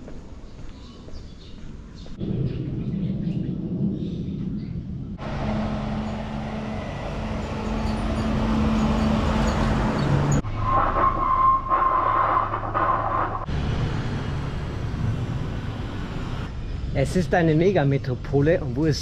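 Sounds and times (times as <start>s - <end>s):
street traffic engines: 5.2s - 18.8s.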